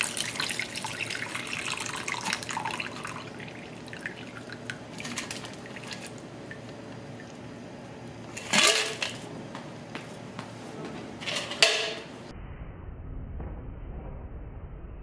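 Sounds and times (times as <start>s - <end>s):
liquid pouring and dripping: 0.0s - 7.5s.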